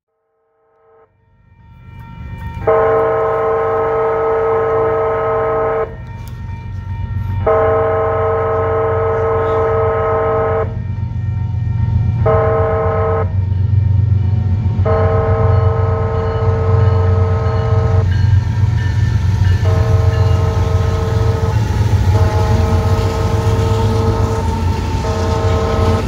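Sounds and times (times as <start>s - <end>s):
low rumble of approaching train: 1.1s - 26.0s
locomotive air horn blasts: 2.6s - 6.1s, 7.4s - 10.8s, 12.2s - 13.4s, 14.8s - 18.2s, 19.5s - 26.0s.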